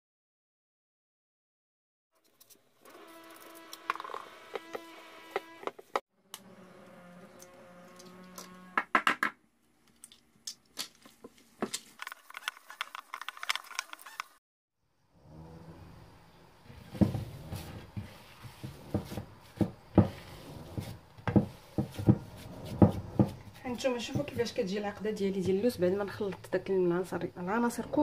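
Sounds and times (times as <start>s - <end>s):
egg cracking: 9.6s - 14.4s.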